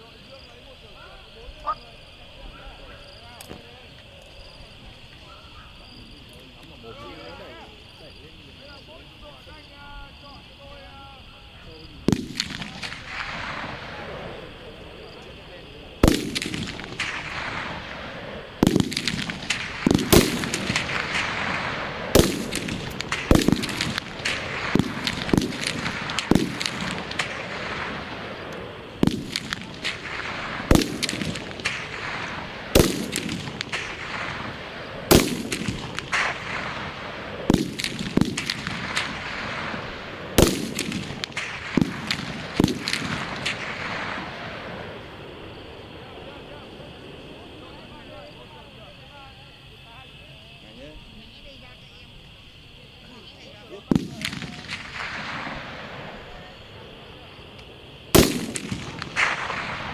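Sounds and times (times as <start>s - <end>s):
rifle shots echoing: 12.0s - 45.8s, 53.9s - 56.6s, 58.0s - 59.9s.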